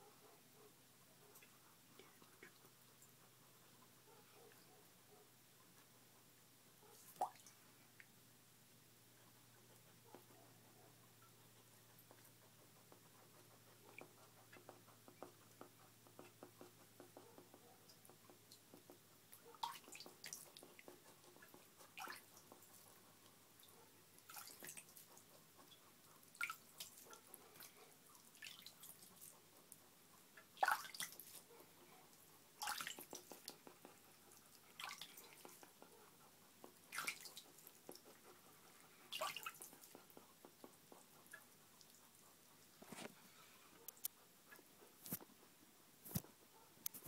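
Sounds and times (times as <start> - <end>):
water dripping and splashing: 7.1 - 7.6, 19.4 - 22.7, 24.2 - 25.2, 26.3 - 29.1, 30.4 - 31.4, 32.6 - 33.6, 34.7 - 35.7, 36.7 - 38.0, 39.1 - 40.0.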